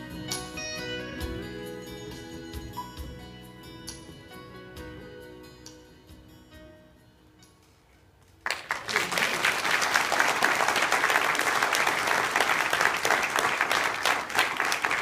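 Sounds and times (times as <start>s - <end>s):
song accompaniment: 0.0s - 7.7s
congregation applauding: 8.4s - 15.0s.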